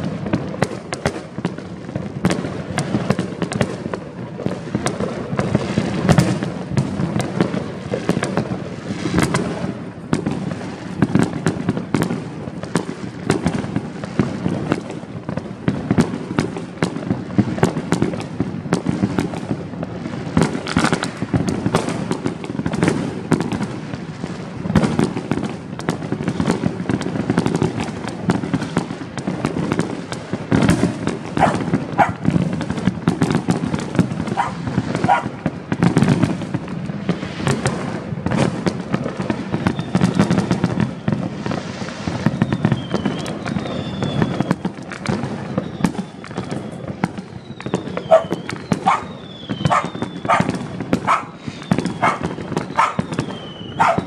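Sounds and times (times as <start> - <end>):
fireworks and firecrackers bangs: 0.0 - 54.0
dog barking: 31.4 - 32.2, 34.3 - 35.3, 48.1 - 49.1, 49.7 - 51.4, 52.0 - 53.0, 53.8 - 54.0.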